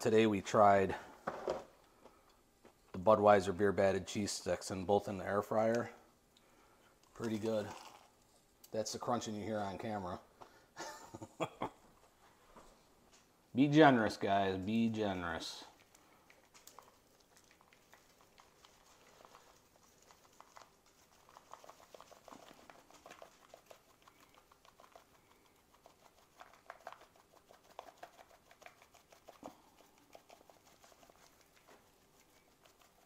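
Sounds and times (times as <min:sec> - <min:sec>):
seasoning patter and clicks: 0:15.4 - 0:33.0.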